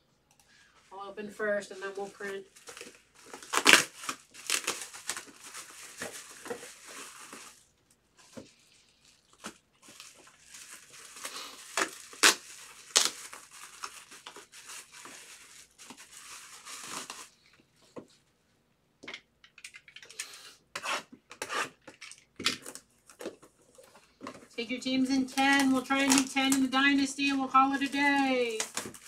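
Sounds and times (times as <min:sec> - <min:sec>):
bubble wrap crinkling and tearing: 0:01.7 - 0:17.4, 0:21.7 - 0:29.0.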